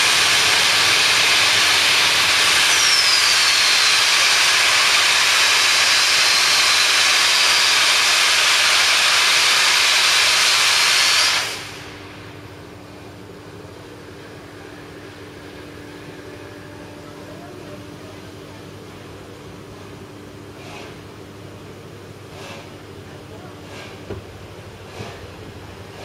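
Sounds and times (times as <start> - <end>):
steam locomotive hissing steam: 0.0 - 12.7.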